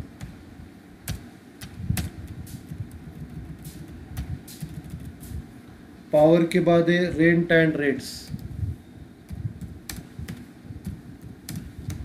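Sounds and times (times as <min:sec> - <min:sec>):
low background rumble: 0:00.0 - 0:06.2, 0:07.0 - 0:12.0.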